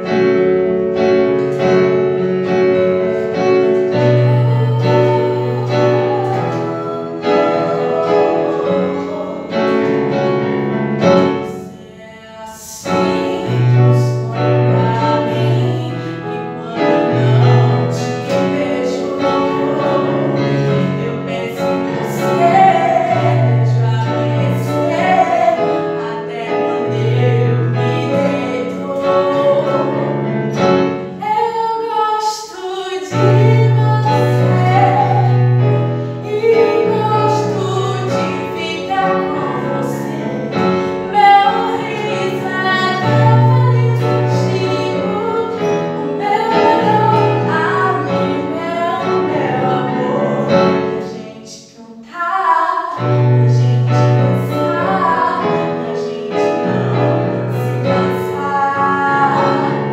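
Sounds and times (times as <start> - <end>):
digital piano chords: 0.0 - 51.8, 52.7 - 59.9
woman singing: 3.1 - 10.2, 11.0 - 59.9.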